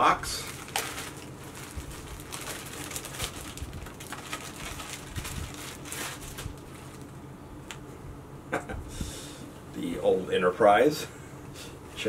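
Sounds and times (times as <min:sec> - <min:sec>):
plastic packaging crinkling: 0:00.0 - 0:07.8
faint low hum: 0:00.0 - 0:12.0.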